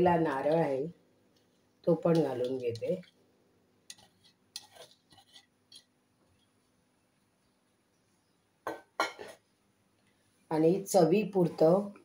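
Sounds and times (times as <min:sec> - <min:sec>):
spoon scraping steel bowl: 0:03.9 - 0:05.9.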